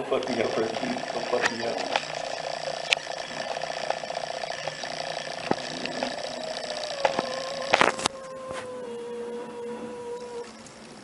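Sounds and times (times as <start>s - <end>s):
sharp clicks: 0.0s - 8.2s.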